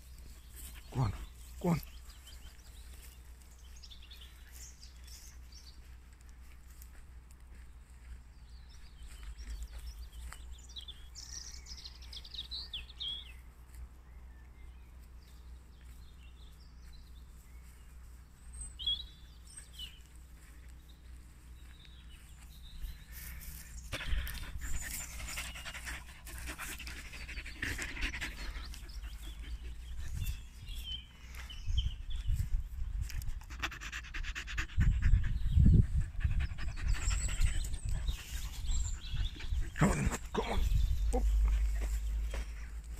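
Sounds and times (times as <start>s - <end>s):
birds chirping: 0.0s - 42.9s
dog panting: 23.8s - 30.4s, 33.3s - 42.9s.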